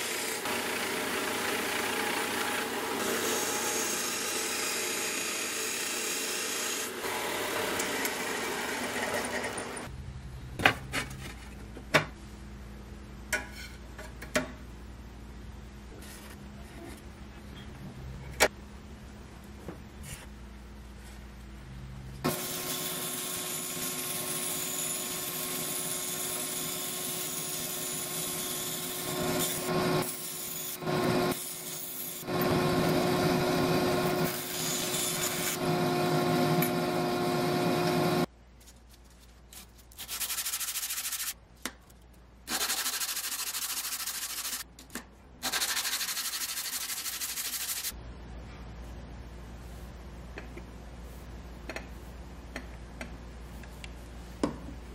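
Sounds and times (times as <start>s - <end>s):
bandsaw cutting steel: 0.0s - 9.9s, 22.3s - 38.3s.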